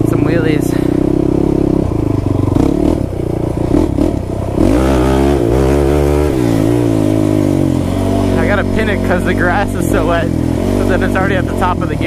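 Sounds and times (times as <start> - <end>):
quad bike engine revving: 0.0 - 12.0.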